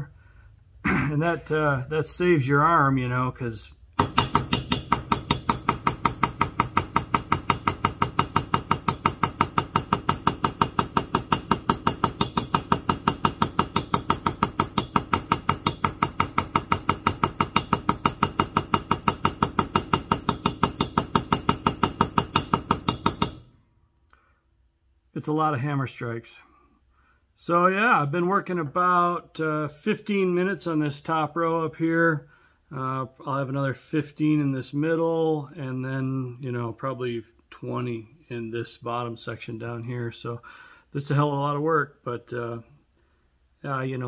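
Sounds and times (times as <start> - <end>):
hammer tapping steel punch: 4.0 - 23.6.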